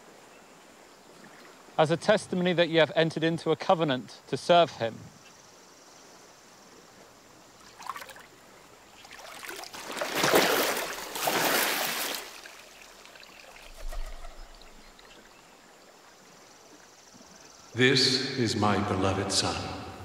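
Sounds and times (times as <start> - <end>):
river water splashing: 6.2 - 17.7.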